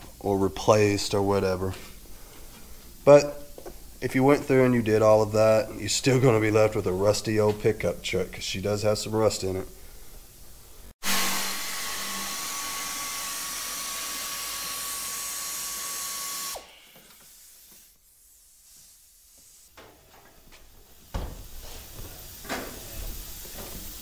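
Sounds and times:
air ratchet hissing and whining: 0:11.0 - 0:19.6.

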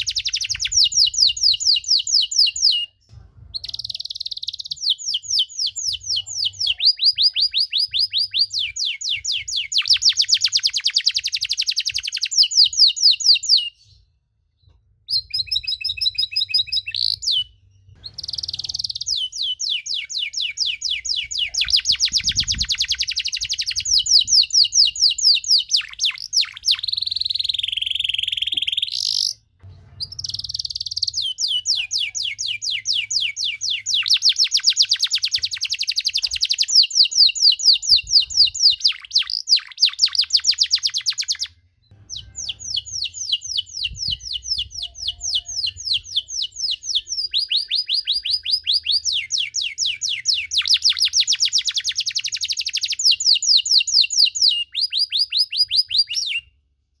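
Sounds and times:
canary singing trills: 0:00.0 - 0:14.1, 0:15.1 - 0:56.5.

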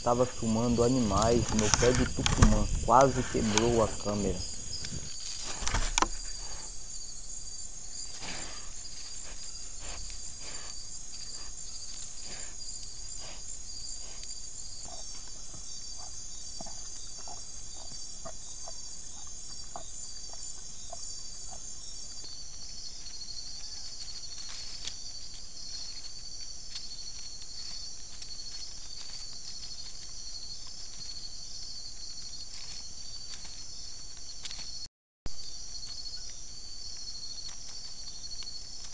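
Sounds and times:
crickets and insects trilling: 0:00.0 - 0:38.9.

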